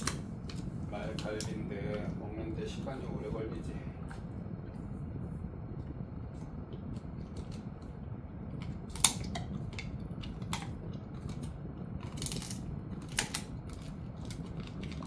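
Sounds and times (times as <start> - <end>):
dog gnawing bone: 0.0 - 2.1, 5.8 - 15.0.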